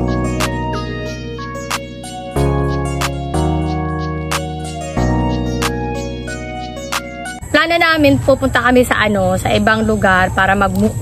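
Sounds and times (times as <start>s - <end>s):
sustained music chords: 0.0s - 7.4s.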